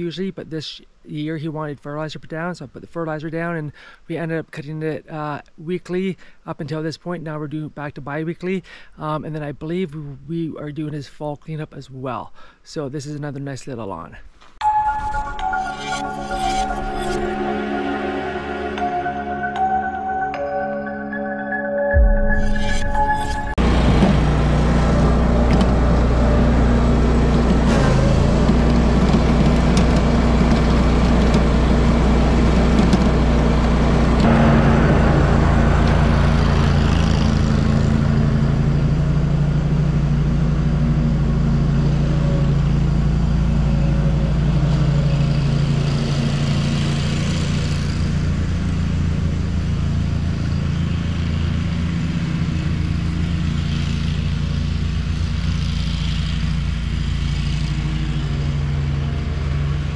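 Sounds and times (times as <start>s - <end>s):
riding mower engine running: 23.5s - 59.9s.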